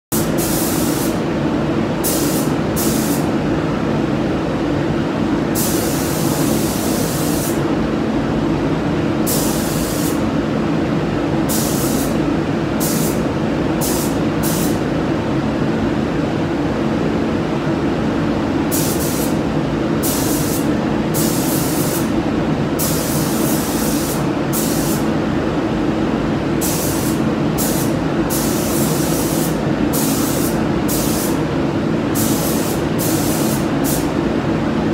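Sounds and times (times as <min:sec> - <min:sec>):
paint spray gun hissing: 0:00.1 - 0:01.2, 0:02.0 - 0:03.2, 0:05.6 - 0:07.6, 0:09.3 - 0:10.2, 0:11.5 - 0:12.2, 0:12.8 - 0:13.2, 0:18.7 - 0:19.4, 0:20.0 - 0:22.1, 0:22.8 - 0:25.1, 0:26.6 - 0:31.4, 0:32.2 - 0:34.1.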